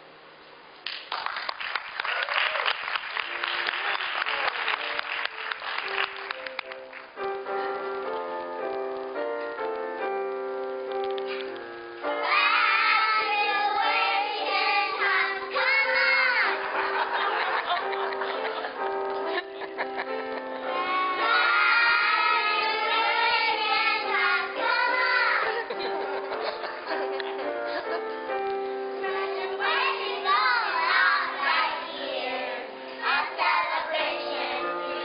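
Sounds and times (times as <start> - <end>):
audience clapping: 0.8 - 7.2
instrumental music: 4.8 - 35.0
children singing: 12.1 - 16.7, 20.7 - 25.8, 29.0 - 35.0.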